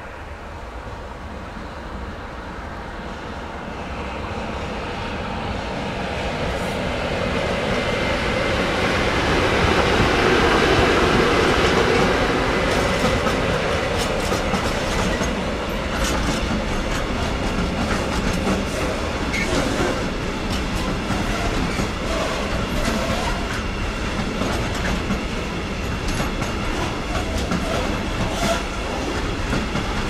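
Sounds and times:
train wheels rumbling on rail: 0.0s - 30.0s
wheels clicking over rail joints: 11.6s - 30.0s.

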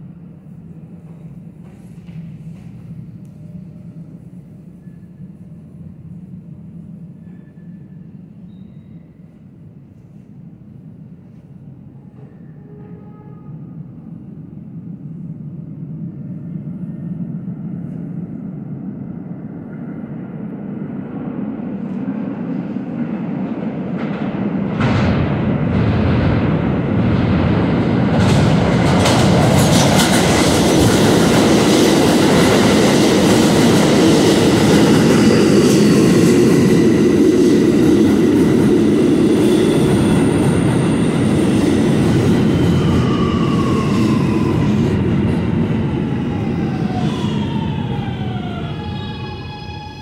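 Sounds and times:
subway train wheels rumbling: 0.0s - 50.0s
train brakes whining: 45.9s - 50.0s.

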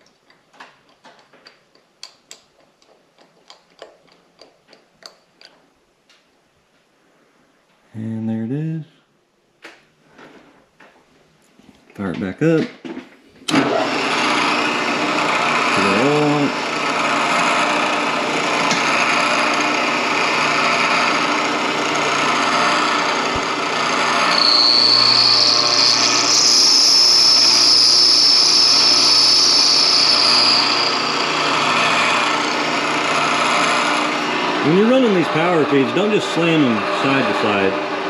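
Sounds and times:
milling machine grinding cut: 13.5s - 38.0s
spindle motor hum: 13.5s - 38.0s
rising and falling whine: 15.3s - 38.0s
high-pitched cutting squeal: 15.4s - 17.3s, 22.2s - 38.0s.

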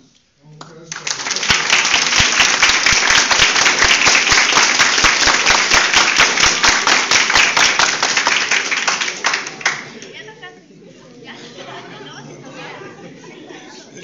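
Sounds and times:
audience applause: 0.9s - 10.2s.

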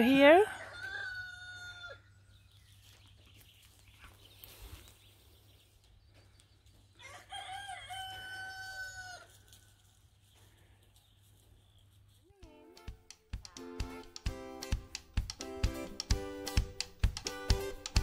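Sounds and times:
rooster crowing: 0.0s - 2.1s, 7.0s - 9.4s.

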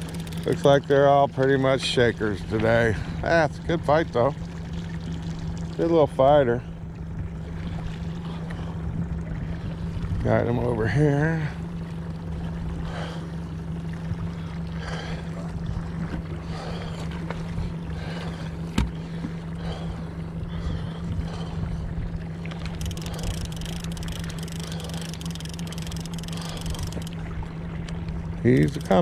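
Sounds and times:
fishing reel ticking: 0.0s - 1.2s, 22.5s - 27.2s, 28.4s - 29.0s
outboard motor humming: 0.0s - 29.0s
water noise from moving boat: 0.0s - 29.0s.

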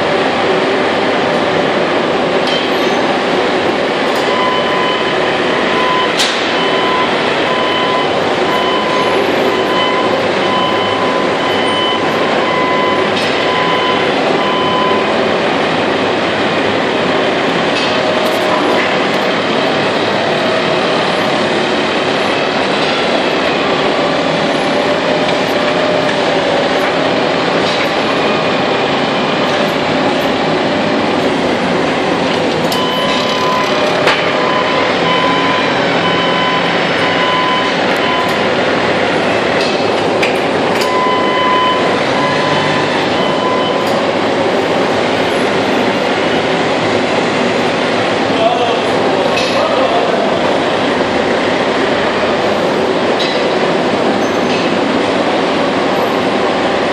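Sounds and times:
industrial machinery din: 0.0s - 56.9s
short high beep: 32.7s - 38.4s.

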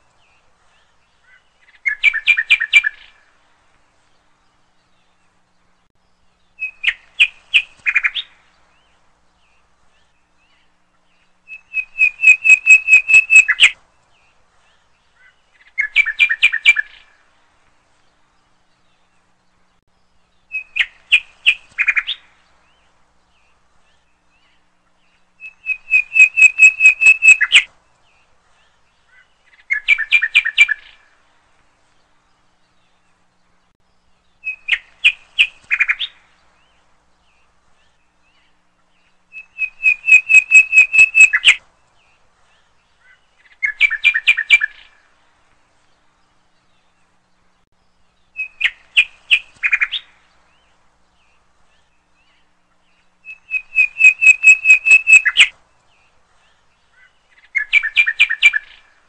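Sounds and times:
bird singing rapid chirps: 0.3s - 3.2s, 4.2s - 17.1s, 18.2s - 31.1s, 32.1s - 45.1s, 45.9s - 59.0s.

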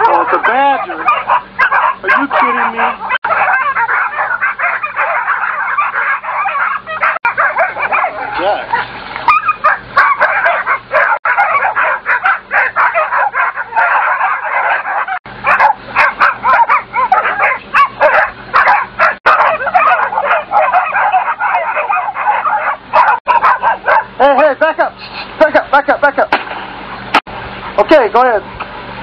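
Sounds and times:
dogs barking and yelping: 0.0s - 24.5s.

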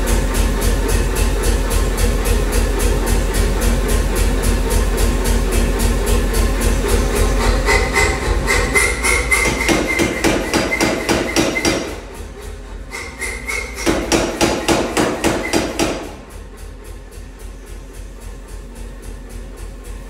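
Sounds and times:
power hammer striking steel: 7.3s - 12.2s, 12.9s - 16.4s.

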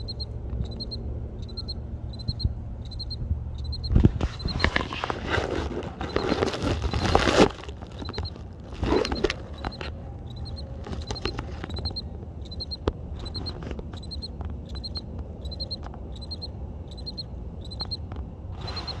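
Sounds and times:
cricket chirping: 0.0s - 4.7s, 8.0s - 19.0s
loud rustling: 4.0s - 9.7s.

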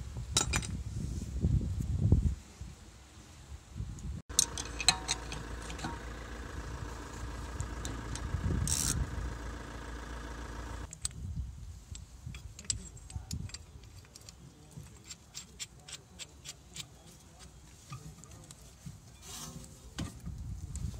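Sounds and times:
metallic clinks of hand tools: 4.3s - 6.0s
engine running: 4.3s - 10.9s.

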